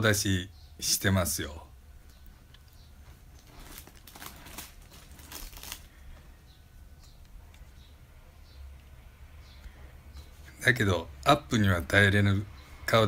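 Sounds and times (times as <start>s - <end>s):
soft crinkling and rustling: 2.0s - 8.0s.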